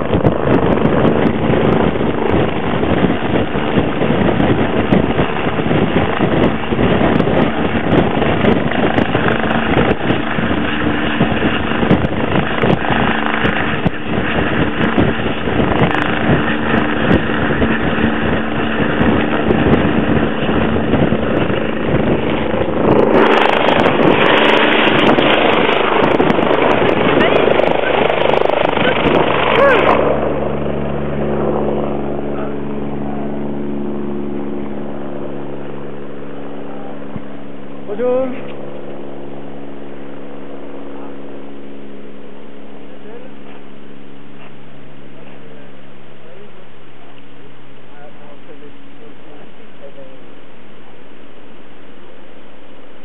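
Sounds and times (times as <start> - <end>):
helicopter hovering: 0.0 - 53.0.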